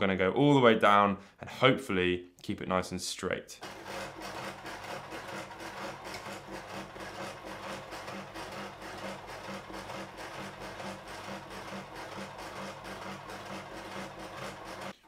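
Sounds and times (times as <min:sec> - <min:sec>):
sewing machine stitching: 0:03.6 - 0:15.0.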